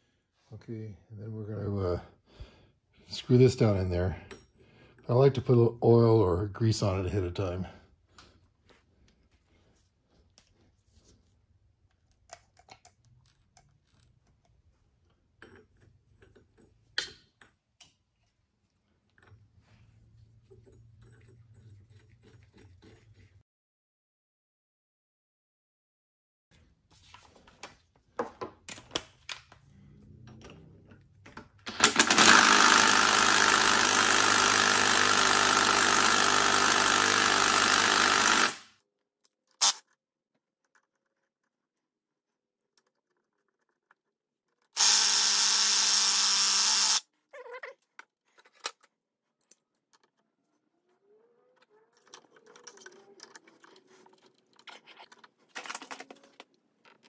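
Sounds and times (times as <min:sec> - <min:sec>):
small clicks and handling clatter: 0:11.8 - 0:18.4, 0:38.9 - 0:44.8, 0:47.7 - 0:50.6, 0:51.5 - 0:57.0
power tool running: 0:31.7 - 0:38.6, 0:44.8 - 0:47.0.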